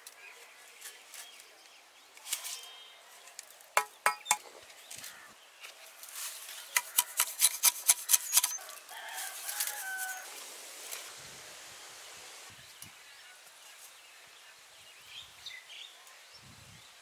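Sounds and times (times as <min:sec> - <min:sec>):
sharp knocks: 0:03.8 - 0:04.5.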